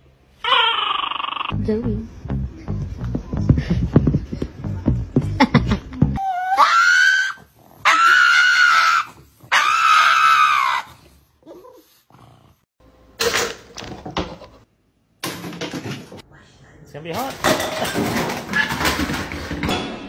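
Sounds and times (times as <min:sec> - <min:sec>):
dog whining: 0:00.4 - 0:01.6, 0:06.2 - 0:11.9.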